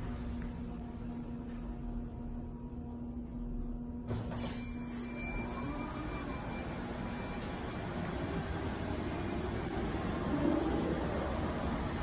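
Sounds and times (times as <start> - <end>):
low elevator hum: 0.0 - 12.0
bright elevator arrival chime: 4.1 - 8.8.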